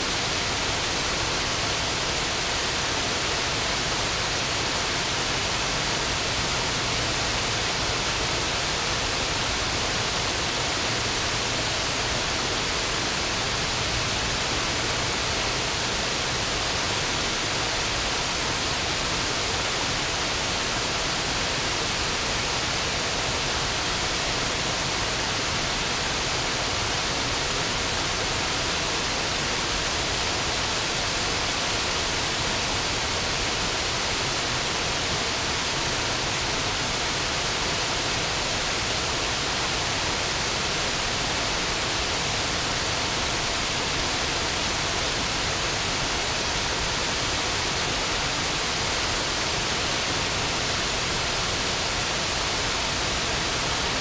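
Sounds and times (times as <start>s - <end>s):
water running through rapids: 0.0s - 54.0s
waterfall rushing: 0.0s - 54.0s.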